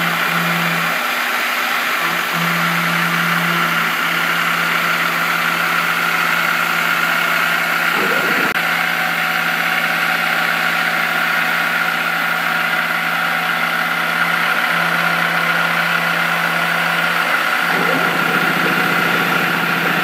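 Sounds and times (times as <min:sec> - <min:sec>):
milling machine cutting metal: 0:17.0 - 0:20.0.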